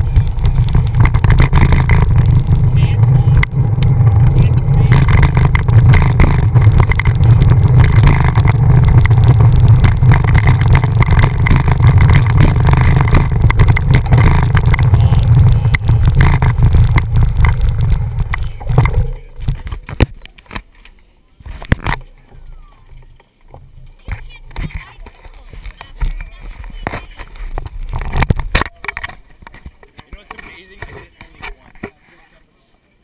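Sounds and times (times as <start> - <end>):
wind buffeting microphone: 0.0 - 20.1.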